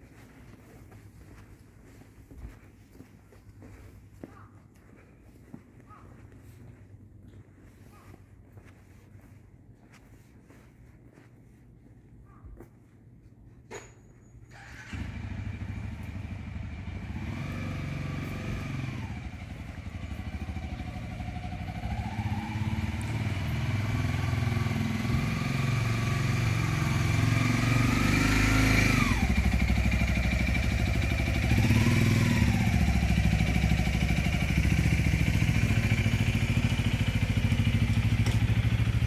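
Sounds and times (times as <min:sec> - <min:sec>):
motorcycle engine revving: 0:14.5 - 0:39.0.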